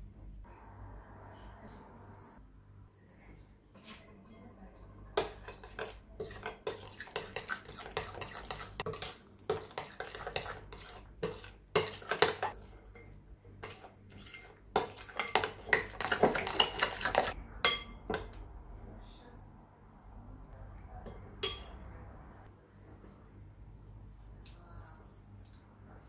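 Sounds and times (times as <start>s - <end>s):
metal spoon scraping glass bowl: 5.4s - 17.8s.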